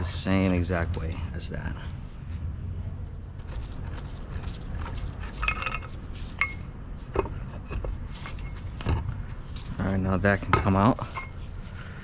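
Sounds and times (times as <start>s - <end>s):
low steady hum: 0.0s - 12.0s
metal clinks taps and scrapes: 3.5s - 12.0s.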